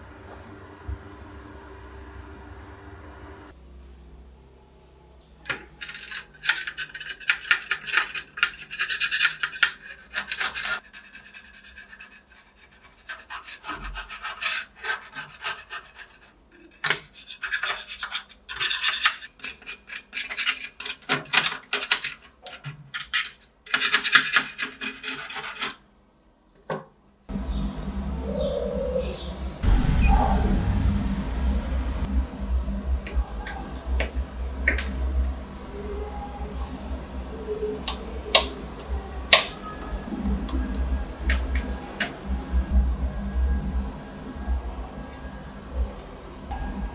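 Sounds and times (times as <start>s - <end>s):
metal scraper rasping on metal: 6.0s - 21.0s, 23.7s - 25.8s.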